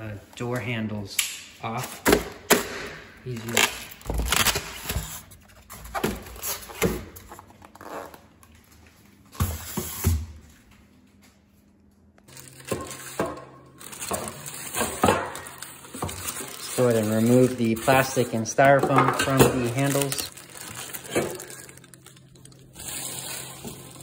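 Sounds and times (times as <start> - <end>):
plastic wrap crinkling: 3.2 - 5.8, 12.3 - 24.0.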